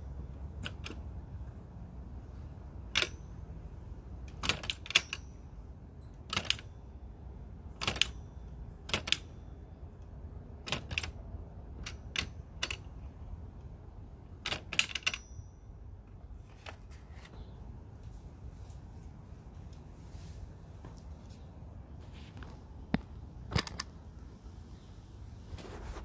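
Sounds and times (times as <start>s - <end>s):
typewriter clacking: 0.6s - 1.0s, 2.9s - 3.2s, 4.2s - 5.2s, 6.2s - 6.7s, 7.7s - 8.2s, 8.8s - 9.3s, 10.6s - 12.9s, 14.4s - 15.2s
short high typewriter ring: 2.9s - 3.4s, 14.5s - 15.6s.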